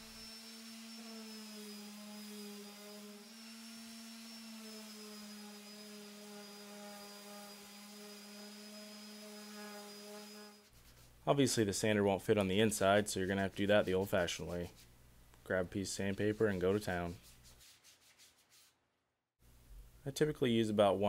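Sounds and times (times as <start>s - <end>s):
orbital sander running: 0.0s - 10.5s.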